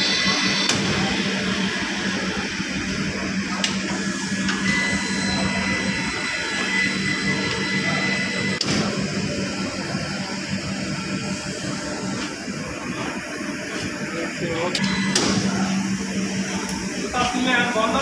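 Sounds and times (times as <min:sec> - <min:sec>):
machine humming: 0:00.0 - 0:18.0.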